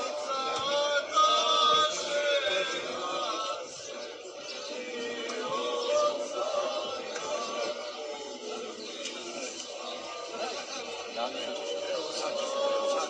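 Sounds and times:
men singing together: 0.0s - 13.0s.

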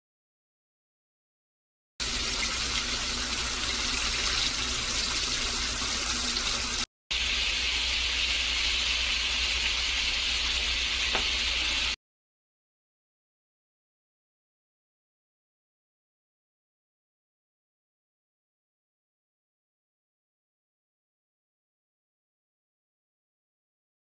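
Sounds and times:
seafood sizzling in hot oil: 6.6s - 12.0s.

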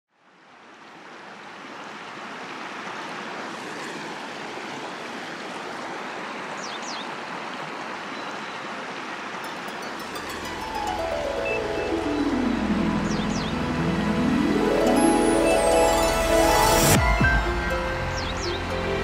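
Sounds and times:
river water rushing: 0.2s - 19.0s
high falling chirps: 9.6s - 18.7s.

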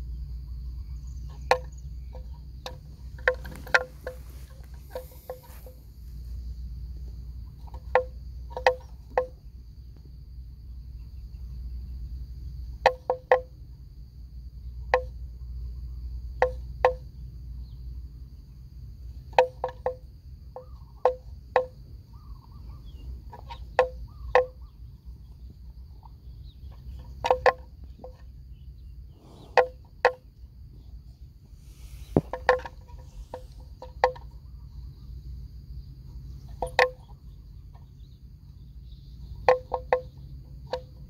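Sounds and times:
steady low rumble: 0.0s - 12.8s, 30.4s - 36.5s
faint high-pitched whine: 0.0s - 41.0s
sharp short knocks: 31.7s - 34.2s.

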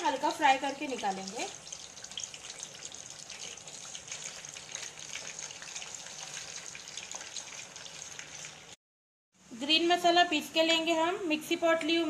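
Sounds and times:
chicken sizzling in hot oil: 0.0s - 8.8s.

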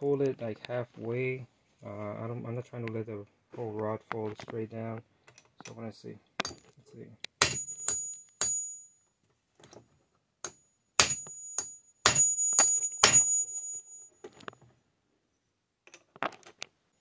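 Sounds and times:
hammer striking steel punch: 7.4s - 8.7s, 10.4s - 13.5s.

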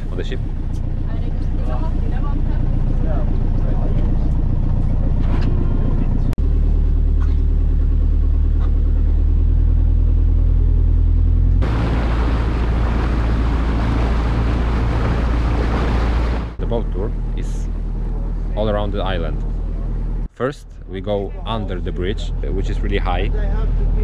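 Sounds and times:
boat engine humming: 0.0s - 24.0s
water rushing along hull: 0.0s - 24.0s.

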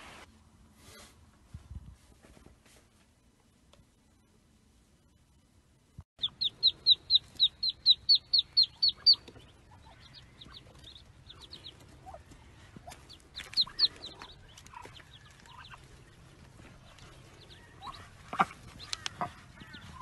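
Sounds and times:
ducklings peeping: 6.2s - 20.0s.

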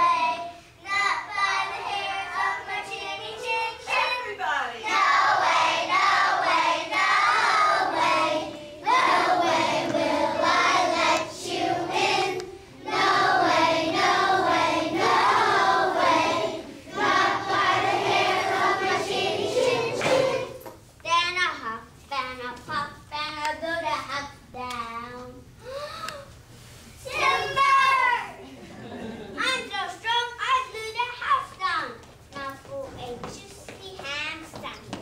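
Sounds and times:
children singing: 0.0s - 4.2s, 4.8s - 20.6s.

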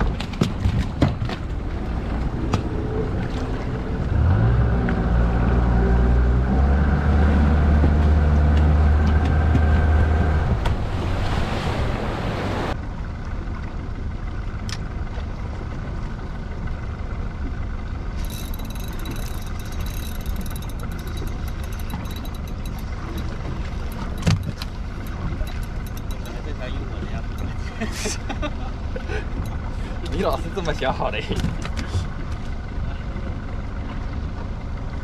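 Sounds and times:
boat engine running: 0.0s - 35.0s
water noise: 0.0s - 35.0s
wind: 0.0s - 35.0s
fast fine ticking: 18.2s - 26.4s.

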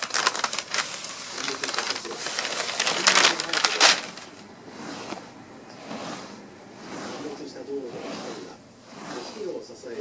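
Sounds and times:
tissue paper crinkling: 0.0s - 4.4s.

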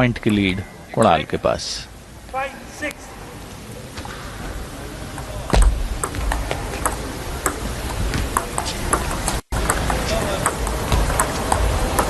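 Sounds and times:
table tennis ball clicking: 5.2s - 12.0s.

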